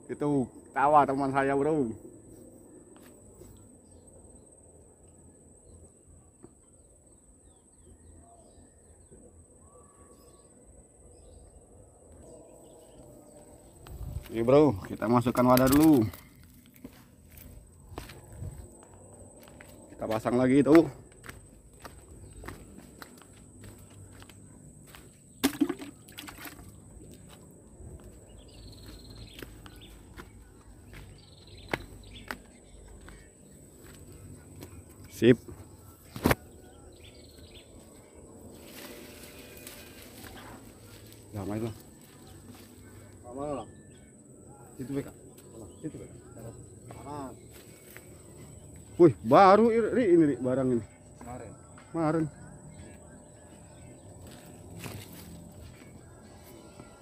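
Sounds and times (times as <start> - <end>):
fish splashing into bucket: 25.4 - 26.7
bird chirps: 28.0 - 57.0.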